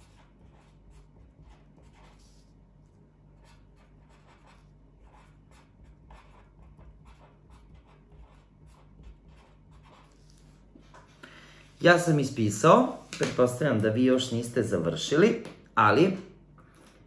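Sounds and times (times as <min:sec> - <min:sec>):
pen scratching on paper: 0:00.0 - 0:02.6, 0:03.3 - 0:11.0.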